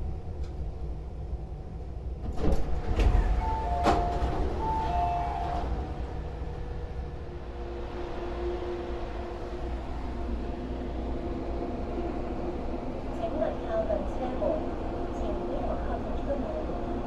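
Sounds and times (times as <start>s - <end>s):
train doors clunk: 2.2s - 6.3s
two-note electronic door chime: 3.2s - 5.8s.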